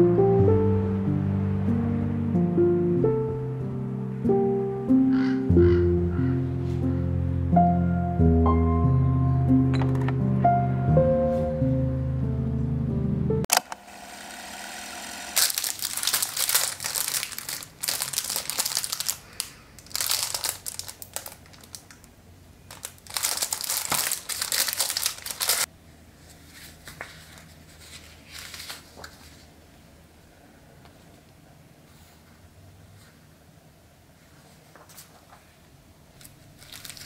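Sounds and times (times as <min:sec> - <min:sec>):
plastic wrapper crinkling: 0:15.3 - 0:25.7, 0:26.5 - 0:29.5, 0:36.2 - 0:37.0
paper sheets rustling: 0:15.4 - 0:21.8, 0:22.7 - 0:29.6, 0:34.2 - 0:35.5, 0:36.2 - 0:37.0.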